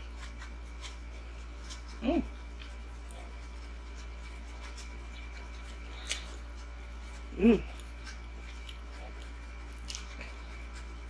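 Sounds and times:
person chewing: 0.0s - 11.0s
person humming mm: 7.3s - 7.7s.

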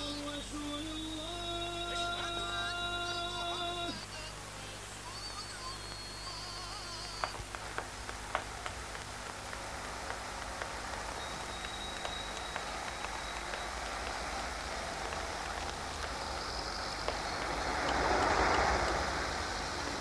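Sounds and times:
night-time ambience hiss: 0.0s - 20.0s
footsteps clicking on pavement: 7.0s - 20.0s.

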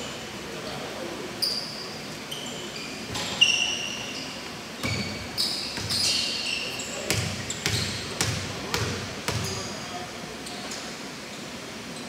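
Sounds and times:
shoes squeaking on court: 1.4s - 12.0s.

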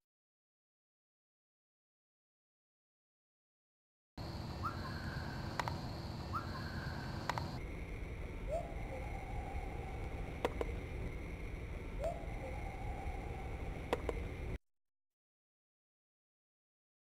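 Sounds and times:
recording hiss: 4.2s - 14.6s
rising whistle-like chirps: 4.5s - 5.6s, 6.2s - 7.6s, 8.4s - 11.2s, 11.9s - 14.6s
sharp clicks: 5.5s - 5.8s, 7.2s - 7.6s, 10.0s - 10.8s, 13.9s - 14.3s.

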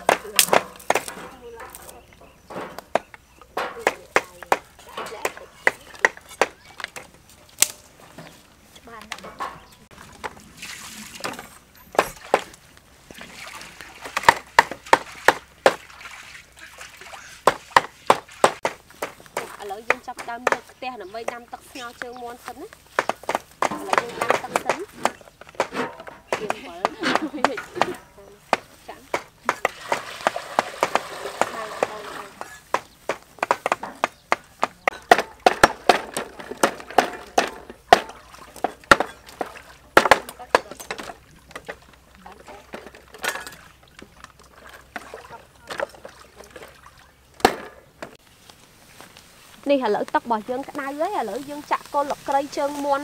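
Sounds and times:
knives chopping on wooden boards: 0.0s - 1.9s, 2.5s - 7.8s, 14.1s - 15.8s, 17.4s - 21.4s, 22.9s - 39.4s.

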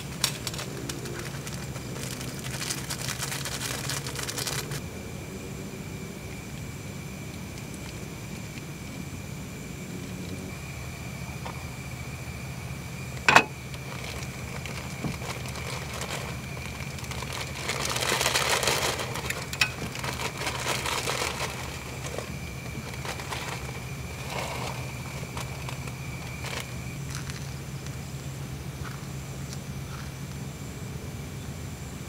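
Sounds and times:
plastic packet rustling: 0.0s - 4.8s, 13.3s - 27.6s
boiling water hissing and bubbling: 0.0s - 30.8s
metal pot lid clanking: 13.3s - 13.6s
small metal clink: 13.3s - 13.6s.

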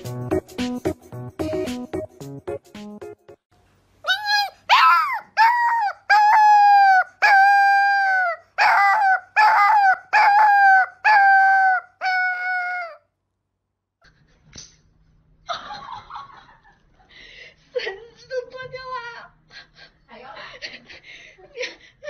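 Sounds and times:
puppy howling: 4.1s - 13.0s.

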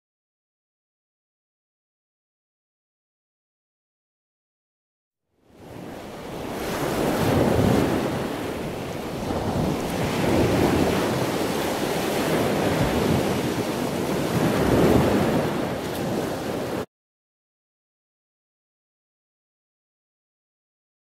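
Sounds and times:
ocean surf rushing: 5.5s - 16.9s.

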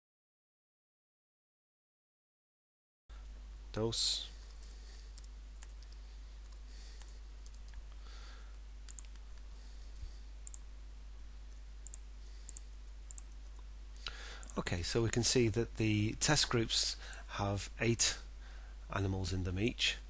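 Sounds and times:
steady low hum: 3.1s - 20.0s
keyboard typing: 4.5s - 7.9s, 8.9s - 9.4s, 10.4s - 10.6s, 11.5s - 13.6s
computer mouse clicks: 4.5s - 8.0s, 8.9s - 9.5s, 10.4s - 10.7s, 11.5s - 13.6s.

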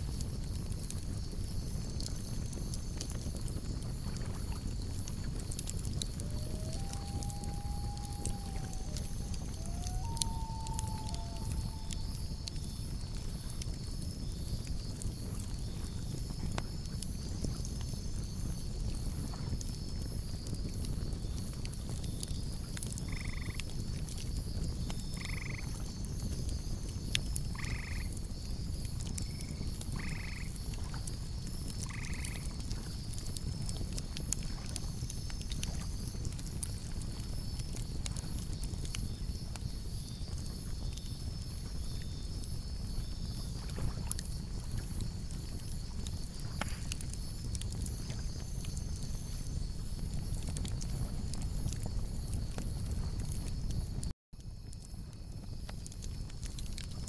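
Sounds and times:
campfire crackling and popping: 0.0s - 57.0s
insects chirping: 0.1s - 21.5s, 22.3s - 23.6s, 24.3s - 57.0s
short animal calls: 6.3s - 12.4s.

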